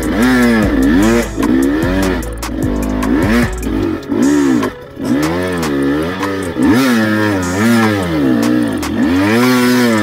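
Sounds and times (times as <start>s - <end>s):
two-stroke engine revving: 0.0s - 10.0s.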